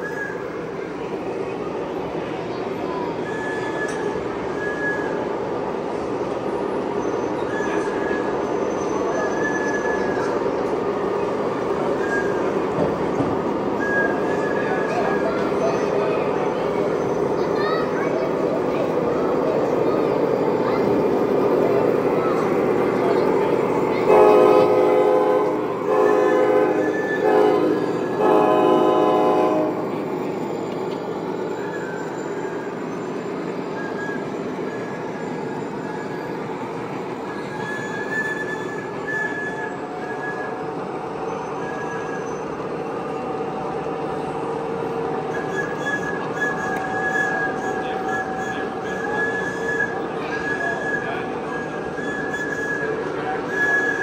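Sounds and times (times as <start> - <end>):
model train running on track: 0.0 - 54.0
high-pitched wheel squeal: 3.2 - 5.3, 6.5 - 10.5, 11.7 - 18.0, 18.7 - 54.0
model train horn blasts: 24.0 - 29.9.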